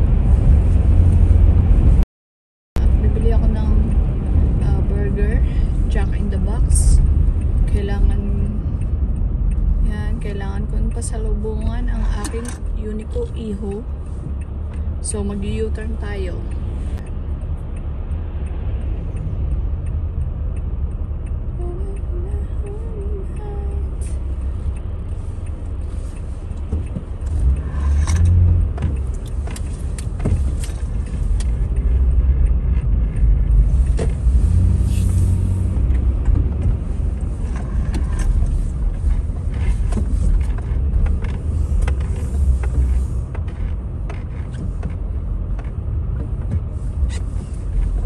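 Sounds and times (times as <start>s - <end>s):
engine and road rumble: 0.0s - 2.0s, 2.8s - 48.0s
light clicks and taps: 10.9s - 35.2s, 35.8s - 48.0s.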